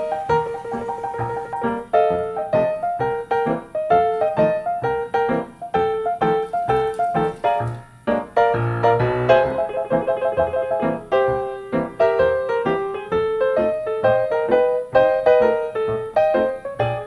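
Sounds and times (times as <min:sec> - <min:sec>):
piano melody: 0:00.0 - 0:17.0.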